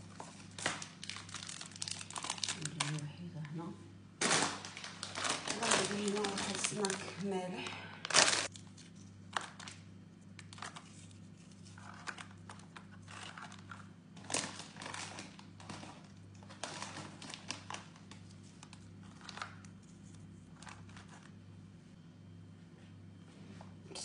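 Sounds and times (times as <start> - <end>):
wrapping crinkling: 0.0 - 3.1, 4.2 - 21.4
steady low hum: 0.0 - 24.0.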